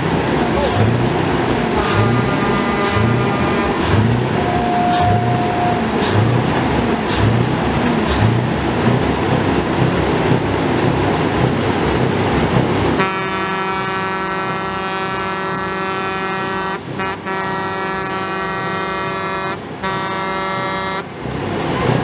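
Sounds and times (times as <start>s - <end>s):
rumbling din with low pulsing beat: 0.0s - 13.0s
truck air horn chord: 1.8s - 6.0s, 13.0s - 21.1s.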